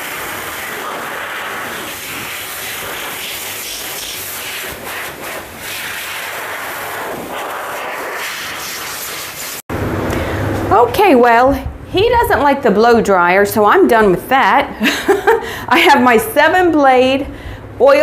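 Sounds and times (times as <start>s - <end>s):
hose blow dryer blowing air: 0.0s - 12.4s.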